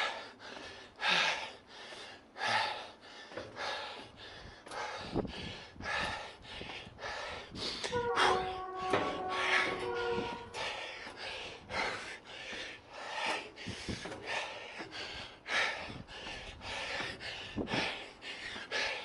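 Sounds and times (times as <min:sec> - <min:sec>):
man panting heavily: 0:00.0 - 0:08.0, 0:09.4 - 0:19.0
faint steady tones: 0:07.9 - 0:11.2.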